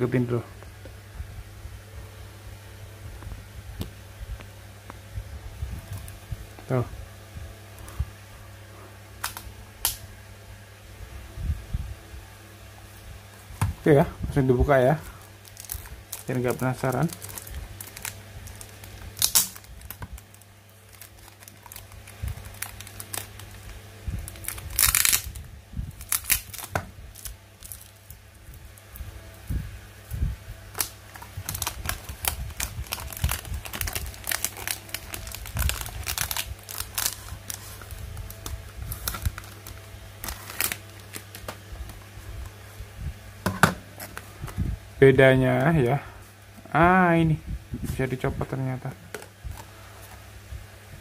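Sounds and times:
low hum: 0.0 - 51.0
plastic wrap crinkling: 14.7 - 42.6.

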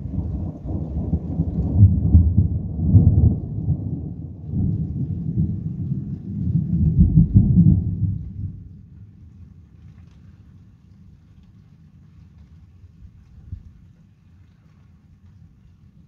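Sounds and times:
deep rolling thunder: 0.0 - 9.0.

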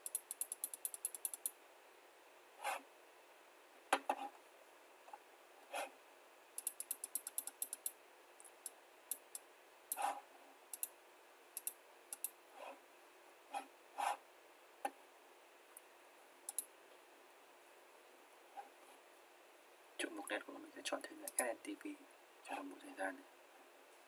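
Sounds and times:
computer mouse clicks: 0.0 - 1.6, 6.6 - 10.1, 10.7 - 10.9, 11.6 - 12.4, 16.5 - 16.7, 21.2 - 21.5.

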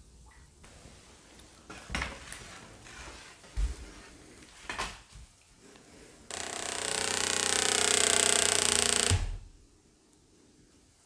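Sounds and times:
loud harsh buzzing: 6.3 - 9.3.

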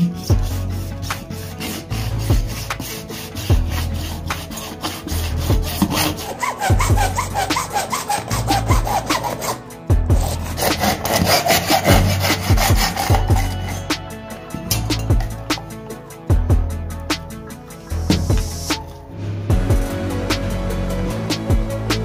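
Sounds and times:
hacksaw cutting plastic: 0.0 - 14.0.

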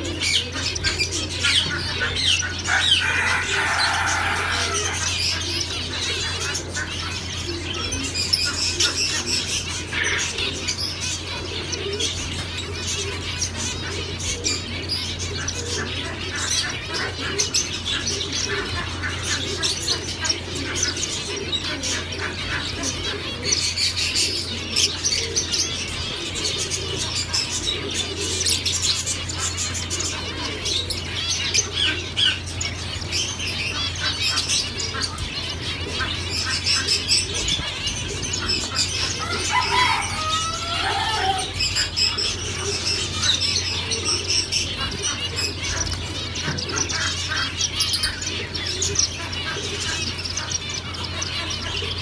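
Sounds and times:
finches chirping: 40.8 - 52.0.

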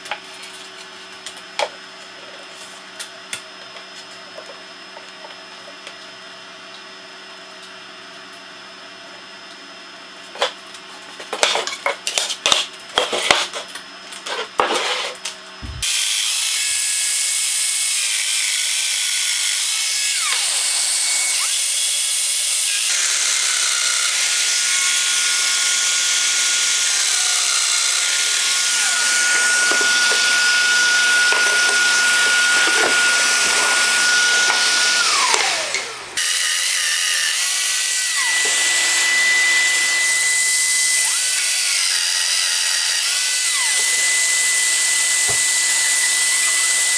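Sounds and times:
power joiner cutting wood: 14.6 - 46.9
dust extractor running: 15.6 - 16.1, 22.9 - 36.8, 37.4 - 46.9.

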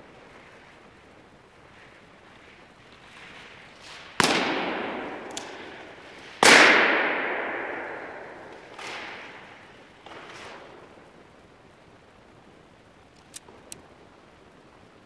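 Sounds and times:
balloon pops echoing in hall: 4.2 - 10.2
small click: 13.1 - 13.8.

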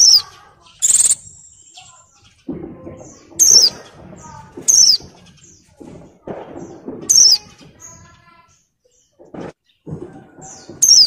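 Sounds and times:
bird giving high falling calls: 0.0 - 2.0.

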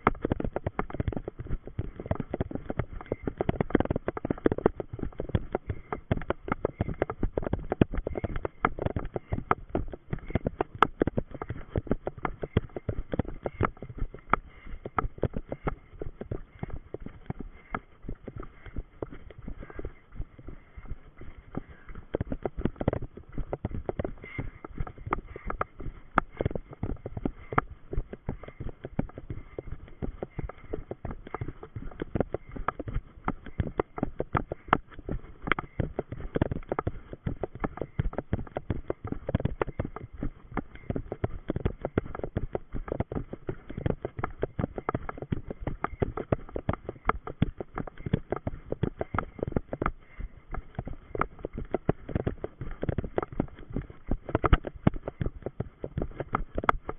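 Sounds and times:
running footsteps on gravel: 0.0 - 56.9.

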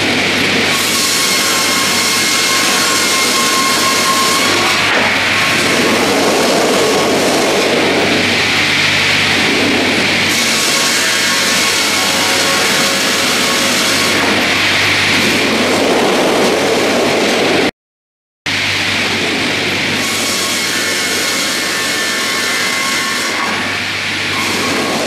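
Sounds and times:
sawmill machine hum: 0.0 - 17.7, 18.5 - 25.0
saw blades cutting log: 0.7 - 15.5, 20.0 - 25.0.

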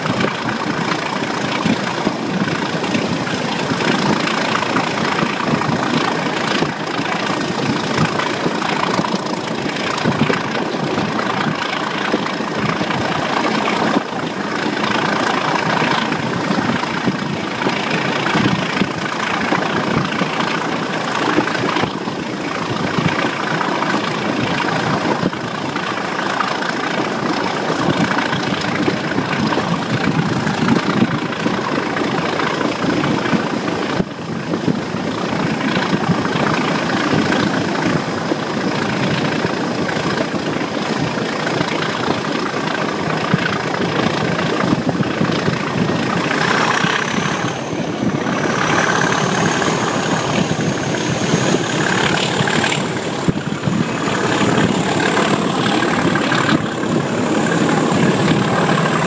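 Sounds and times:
diesel locomotive engine running: 0.0 - 59.0
wheel-on-rail noise: 0.0 - 59.0
rushing air: 42.1 - 59.0.

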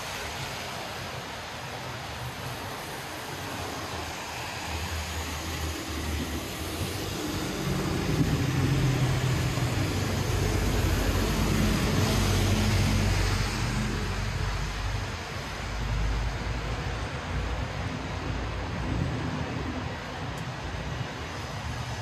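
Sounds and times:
rain hiss on wet street: 0.0 - 22.0
vehicle engine passing by: 7.0 - 15.0.

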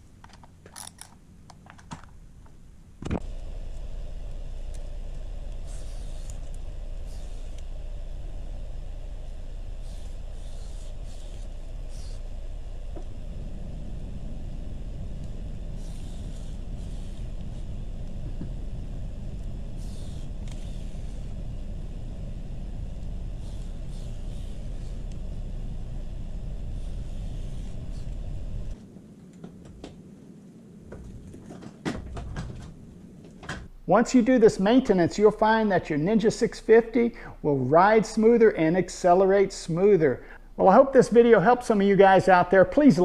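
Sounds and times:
motorcycle engine running: 3.2 - 28.8
aerosol spray hisses: 3.3 - 28.8.

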